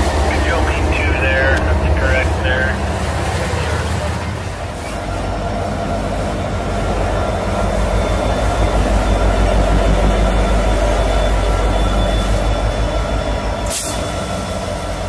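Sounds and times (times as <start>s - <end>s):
freight train rumbling past: 0.0s - 15.0s
train cars clattering over rails: 0.0s - 15.0s.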